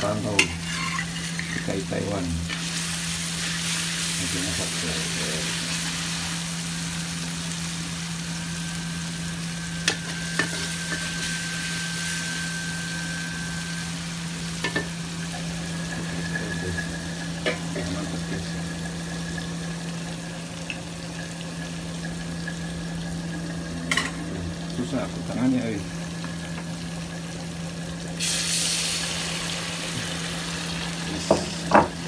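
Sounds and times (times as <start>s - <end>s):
paste sizzling in a wok: 0.0s - 23.4s, 24.6s - 32.0s
low hum: 8.0s - 20.0s.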